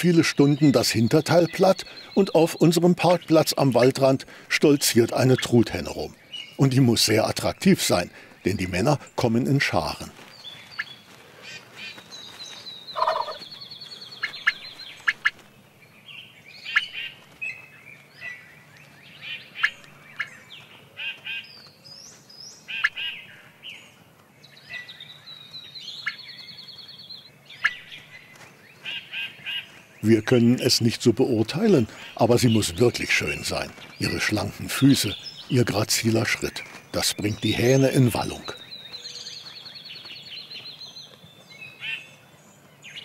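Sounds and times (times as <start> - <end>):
turkeys gobbling: 12.9 - 13.5, 14.2 - 15.4
turkey clucking: 13.0 - 13.4.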